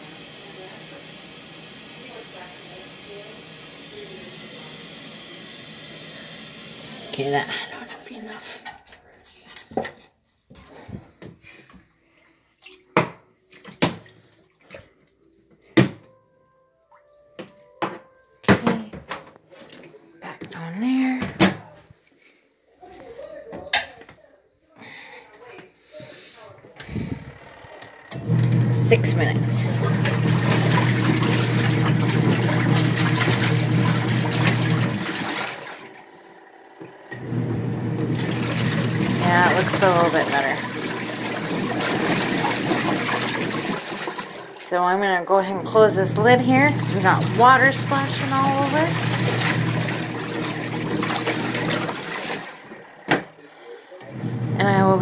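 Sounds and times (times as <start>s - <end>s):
water sloshing in washing machine: 12.4s - 16.2s, 28.1s - 53.4s, 54.0s - 55.0s.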